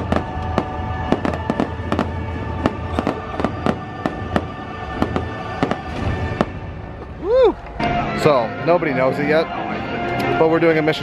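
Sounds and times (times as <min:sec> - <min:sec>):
fireworks cracking and popping: 0:00.0 - 0:07.9
music: 0:00.0 - 0:11.0.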